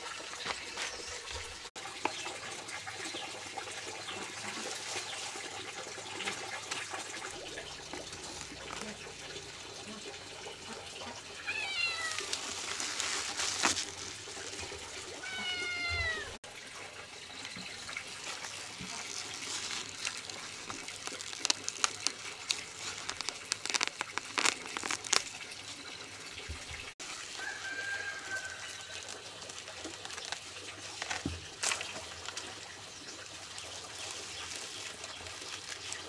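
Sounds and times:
running or splashing water: 0.0 - 36.0
long falling animal calls: 11.4 - 13.0, 15.2 - 16.4.

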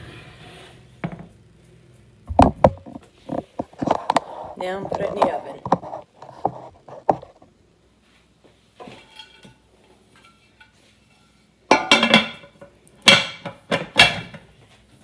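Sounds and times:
dishes clinking and clattering: 8.8 - 9.6, 11.7 - 14.5
loud clanks of cookware: 11.7 - 14.5.

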